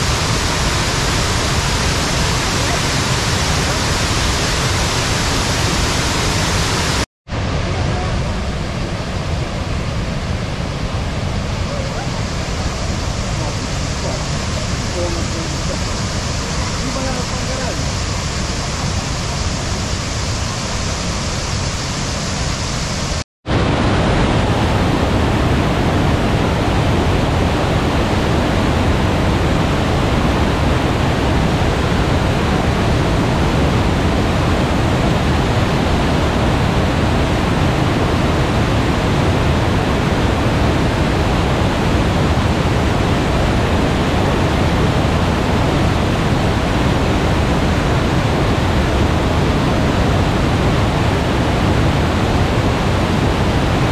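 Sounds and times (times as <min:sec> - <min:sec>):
waterfall rushing: 0:00.0 - 0:53.9.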